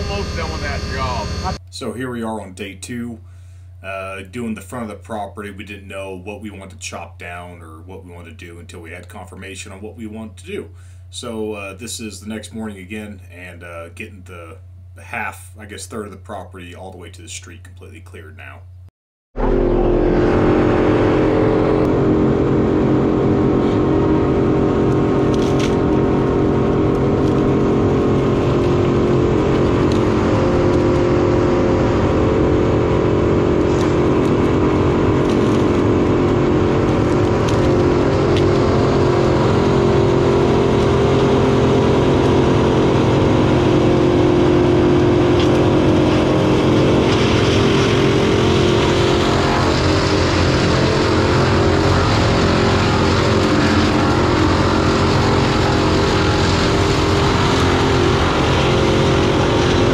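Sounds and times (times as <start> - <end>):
diesel engine running: 0.0 - 1.6, 19.4 - 59.9.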